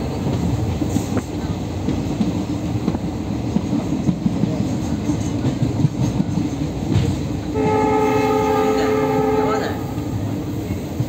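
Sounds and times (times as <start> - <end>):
train wheels rumbling on rails: 0.0 - 11.0
train horn blast: 7.5 - 10.2.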